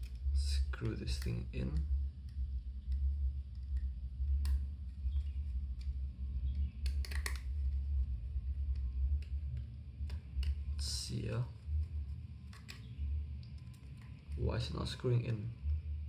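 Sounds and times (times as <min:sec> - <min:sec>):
steady low hum: 0:00.0 - 0:16.0
screwdriver clicks and taps: 0:06.8 - 0:07.4.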